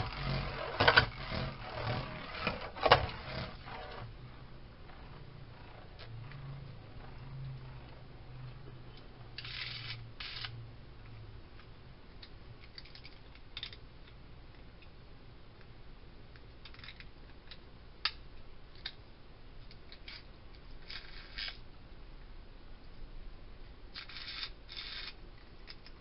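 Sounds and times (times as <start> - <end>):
scrapes and clicks: 0.0 - 4.1
spinning top in plastic stadium: 0.0 - 4.2, 9.4 - 10.6, 19.9 - 21.6, 23.9 - 26.0
faint low hum: 0.0 - 26.0.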